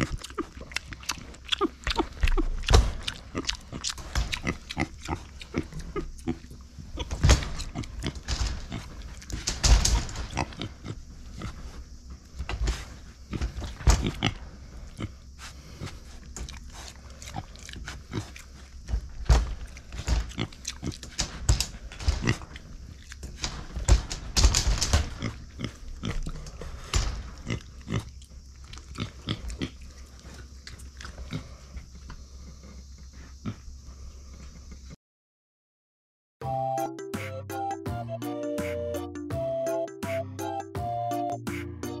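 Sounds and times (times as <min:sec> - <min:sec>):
pig grunting and snuffling: 0:00.0 - 0:24.2, 0:24.8 - 0:35.0
sharp clicks and knocks: 0:07.0 - 0:10.7, 0:18.9 - 0:25.4.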